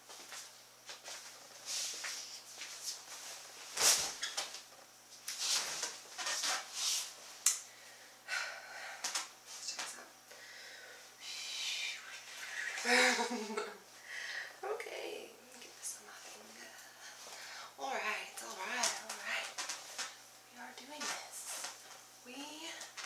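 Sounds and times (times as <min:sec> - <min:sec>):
faint steady hum: 0:00.0 - 0:23.0
rustling: 0:00.1 - 0:07.4.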